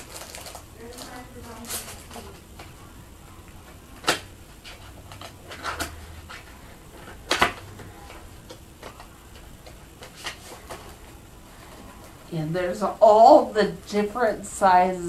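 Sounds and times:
packaging rustling: 0.0 - 2.8, 3.6 - 12.3.

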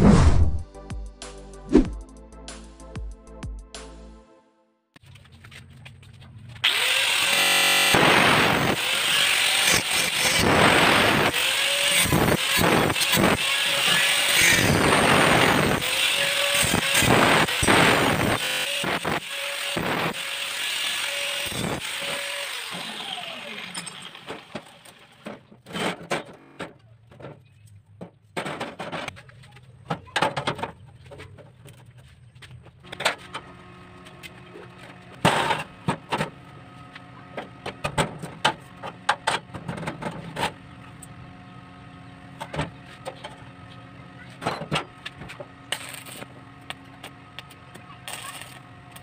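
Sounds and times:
angle grinder winding down: 6.6 - 25.2.

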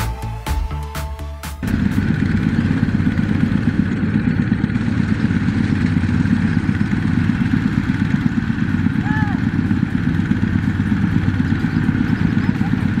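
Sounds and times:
diesel engine chugging: 0.0 - 13.0.

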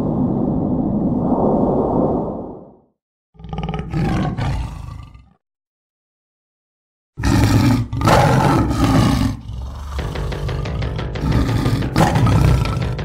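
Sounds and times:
animal roar: 3.4 - 5.4, 7.2 - 13.0.

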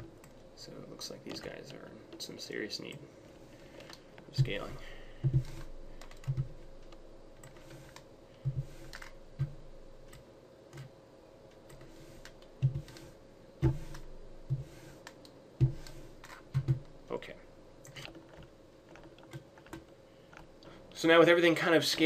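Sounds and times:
faint steady hum: 0.0 - 22.0
keyboard and mouse clicks: 5.2 - 10.9, 11.5 - 16.9, 17.8 - 20.5.

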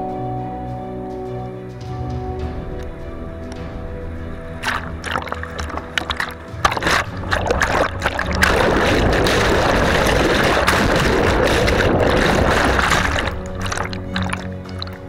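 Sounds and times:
whitewater rushing: 4.6 - 15.0.

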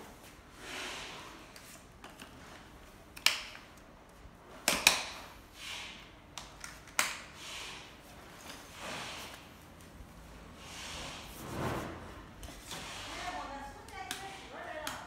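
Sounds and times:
plastic clicks and snaps: 3.1 - 3.8.

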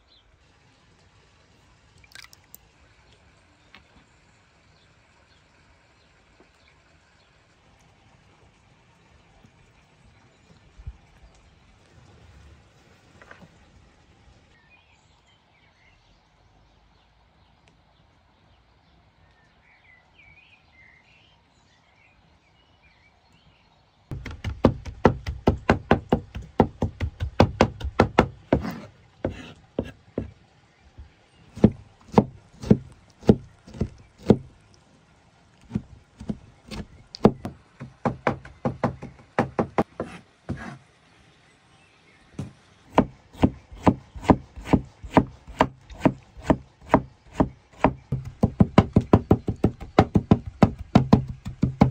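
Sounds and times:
knife chopping on wooden board: 24.1 - 30.3, 31.6 - 34.5, 35.7 - 40.8, 42.4 - 51.9.

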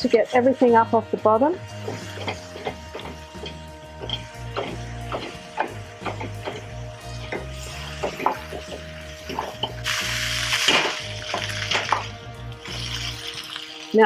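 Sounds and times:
food sizzling: 0.0 - 14.0
spatula scraping a wok: 1.5 - 11.9.

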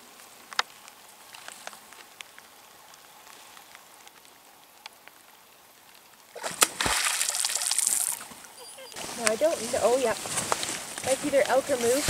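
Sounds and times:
soft hiss: 0.0 - 12.0
drips on lake water: 0.2 - 9.1.

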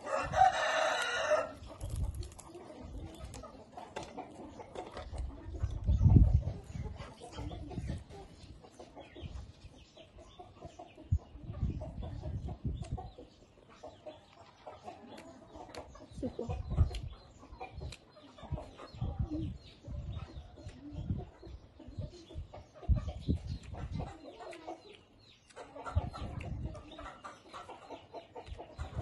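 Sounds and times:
chewing and crunching vegetables: 0.0 - 9.0, 13.9 - 19.0, 23.3 - 29.0
chickens clucking: 0.0 - 29.0
mouth clicks and smacks: 16.7 - 17.2, 17.8 - 18.1, 23.2 - 26.7.

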